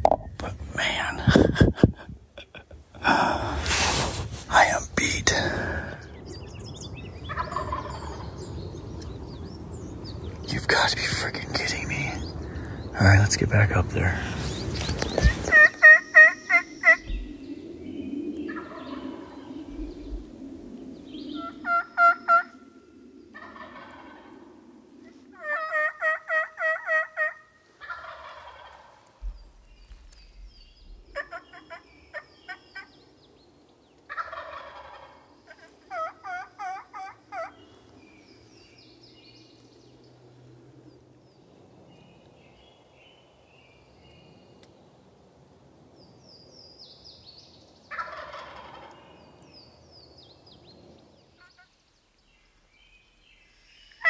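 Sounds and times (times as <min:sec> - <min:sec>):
small birds chirping: 0:04.5 - 0:24.1, 0:27.9 - 0:45.0, 0:45.9 - 0:54.0
turkey gobbling: 0:07.3 - 0:08.2, 0:15.2 - 0:17.3, 0:18.5 - 0:19.1, 0:21.4 - 0:22.6, 0:23.4 - 0:24.4, 0:25.4 - 0:29.0, 0:31.1 - 0:32.9, 0:34.1 - 0:37.6, 0:47.9 - 0:49.0
turkey call yelps: 0:15.5 - 0:17.2, 0:21.4 - 0:22.5, 0:25.4 - 0:29.0, 0:31.1 - 0:32.9, 0:34.1 - 0:37.5.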